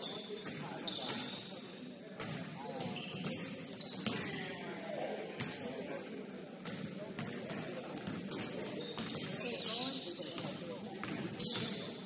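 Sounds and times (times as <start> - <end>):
players' voices: 0.0 - 12.0
sneakers squeaking: 0.0 - 12.0.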